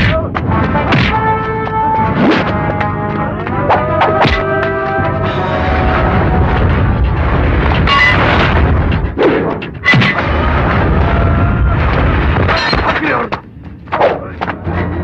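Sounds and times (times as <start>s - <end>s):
background music: 0.0s - 15.0s
low rumble of sound effects: 5.0s - 15.0s.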